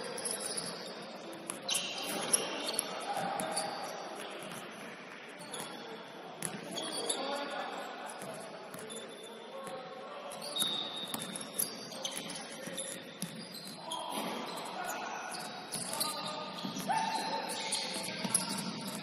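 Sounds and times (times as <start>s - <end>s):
sneakers squeaking: 0.0s - 7.6s, 8.2s - 19.0s
players' voices: 0.0s - 19.0s
basketball bouncing on court: 6.4s - 6.7s, 13.2s - 14.3s.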